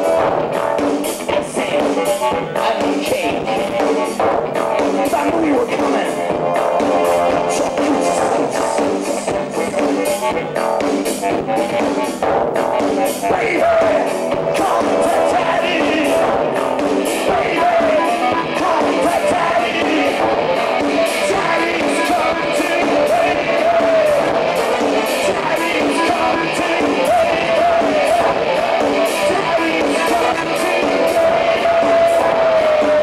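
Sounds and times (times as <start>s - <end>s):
electronic beat: 0.0s - 33.0s
man singing: 0.0s - 33.0s.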